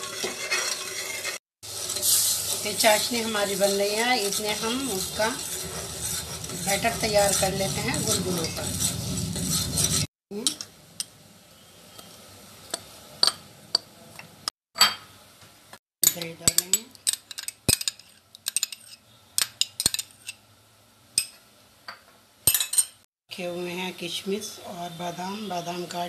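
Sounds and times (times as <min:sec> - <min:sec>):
spoon stirring in steel pot: 0:00.0 - 0:11.1.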